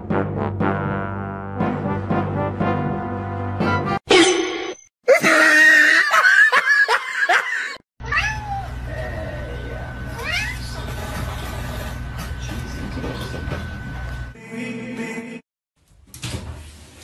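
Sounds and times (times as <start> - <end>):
cat yowling and meowing: 8.0 - 8.8.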